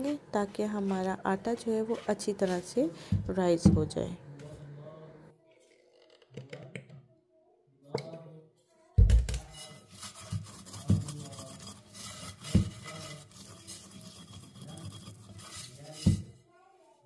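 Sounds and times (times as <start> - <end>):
glass bowl rubbing and scraping: 9.4 - 16.4.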